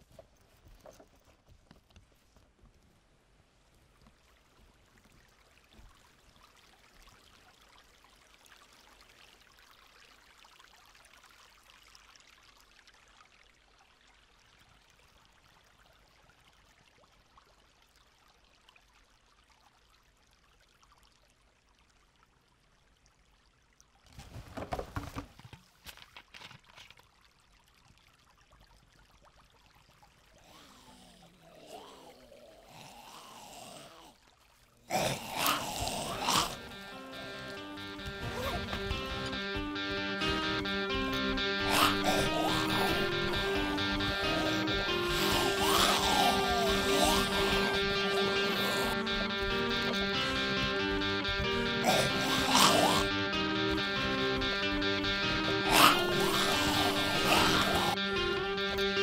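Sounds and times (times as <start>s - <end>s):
stream trickling: 3.5s - 24.4s, 25.6s - 37.6s.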